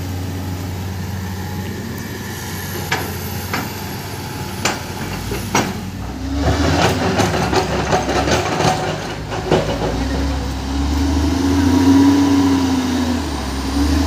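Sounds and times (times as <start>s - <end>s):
diesel earthmoving machinery running: 0.0s - 14.0s
excavator bucket clanking on rock: 4.6s - 10.5s.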